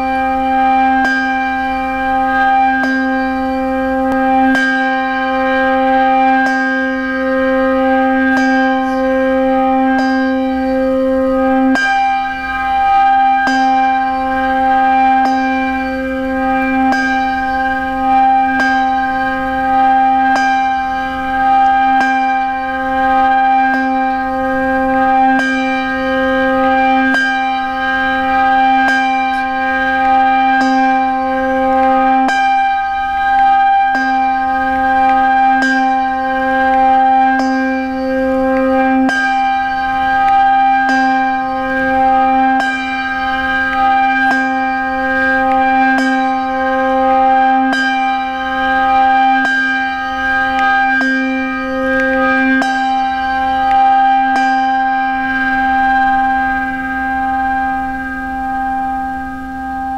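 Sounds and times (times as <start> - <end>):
church bell tolling: 0.0 - 59.9.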